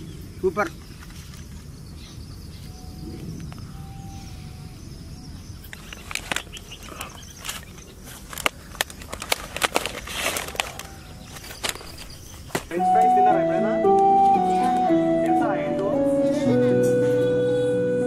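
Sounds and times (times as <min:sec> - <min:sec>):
foil trays crinkling: 0:05.8 - 0:12.8.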